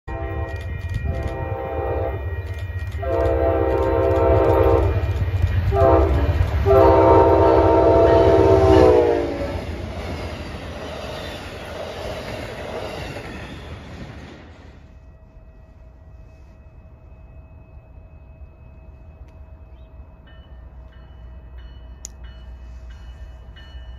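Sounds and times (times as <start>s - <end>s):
train horn blasts: 0.0s - 9.8s
train rumble: 0.0s - 23.9s.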